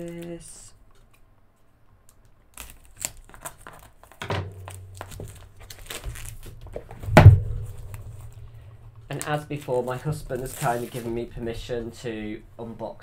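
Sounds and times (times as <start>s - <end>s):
plastic wrapping crinkling: 2.1s - 12.0s
thud: 6.8s - 9.1s.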